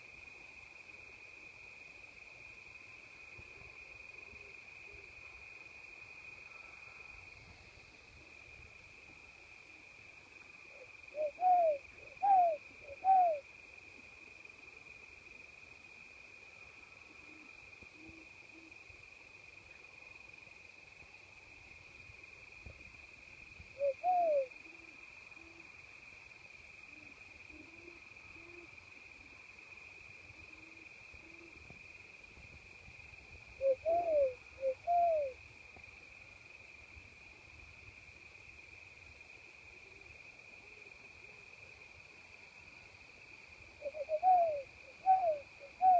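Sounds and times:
crickets chirping: 0.0s - 45.9s
faint owl hoots: 10.6s - 13.5s, 17.0s - 18.8s, 23.7s - 25.7s, 26.9s - 29.4s, 30.3s - 31.6s, 33.6s - 35.4s, 43.8s - 45.9s
person whistling owl calls: 11.2s - 13.4s, 23.8s - 24.5s, 33.6s - 35.4s, 43.8s - 45.9s.

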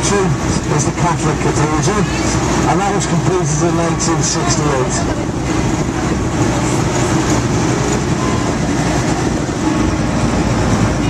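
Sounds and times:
vehicle engine and road rumble: 0.0s - 11.0s.

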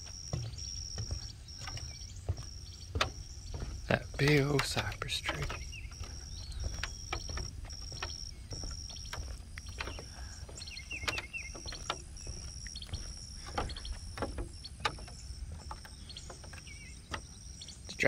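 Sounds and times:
bird chirps: 0.0s - 18.0s
sharp clicks: 3.9s - 10.2s, 10.9s - 17.3s.

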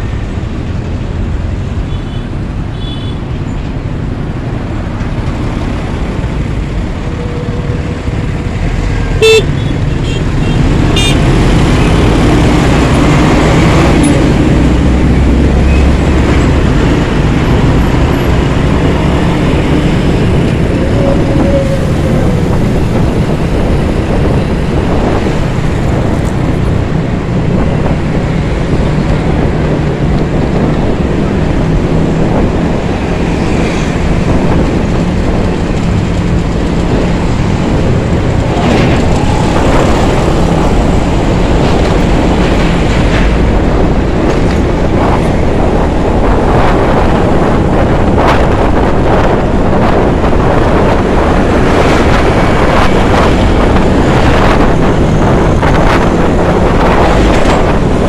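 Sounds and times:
scooter engine and road noise: 0.0s - 58.0s.

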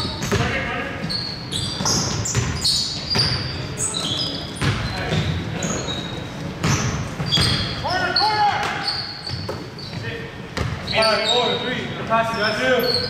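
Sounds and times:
players' voices: 0.0s - 1.2s, 1.8s - 13.0s
basketball bouncing on court: 0.0s - 3.6s, 4.6s - 5.4s, 6.6s - 7.9s, 8.6s - 10.9s
shoe squeaks: 0.0s - 13.0s.

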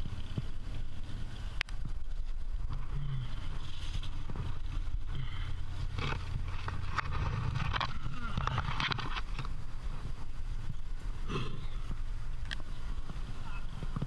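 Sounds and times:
low wind rumble on microphone: 0.0s - 14.0s
scraping on rock: 2.3s - 10.2s.

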